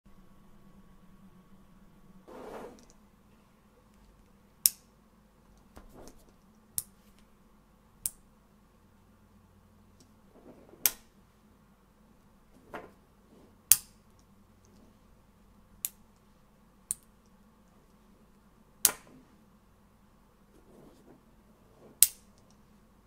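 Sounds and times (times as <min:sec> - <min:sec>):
faint handling rustle: 0:20.5 - 0:22.0.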